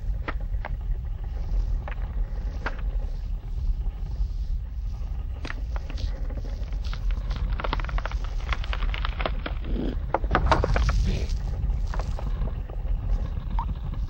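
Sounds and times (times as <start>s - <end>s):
low wind-like rumble: 0.0s - 14.0s
small stones clattering: 6.7s - 12.5s.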